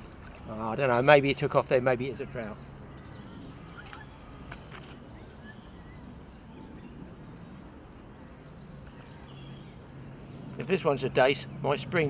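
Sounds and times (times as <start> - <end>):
soft clicks: 2.6 - 5.0.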